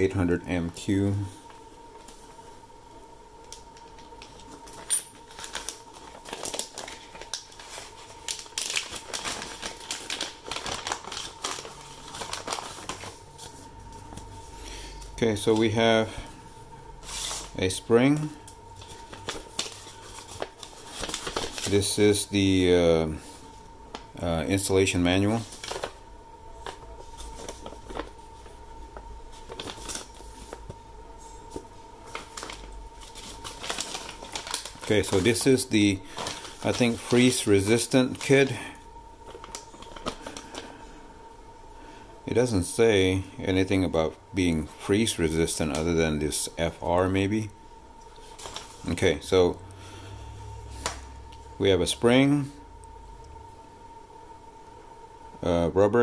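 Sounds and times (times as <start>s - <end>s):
plastic bag crinkling: 3.5s - 16.1s, 17.0s - 22.7s, 23.4s - 30.7s, 31.5s - 40.8s, 48.1s - 49.4s
paper rustling and tapping: 18.8s - 21.8s.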